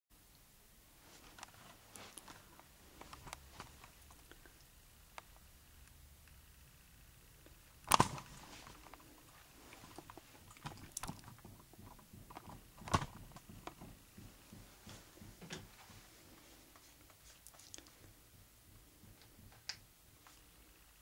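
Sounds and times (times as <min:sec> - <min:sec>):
sharp clicks and knocks: 0:07.8 - 0:15.7.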